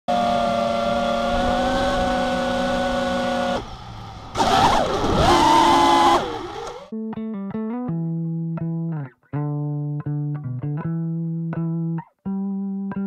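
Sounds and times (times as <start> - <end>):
quadcopter motors whining: 0.1 - 6.9.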